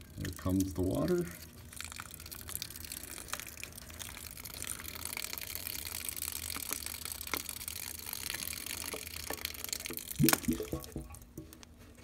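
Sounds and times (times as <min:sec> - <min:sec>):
water dripping: 0:00.2 - 0:11.4.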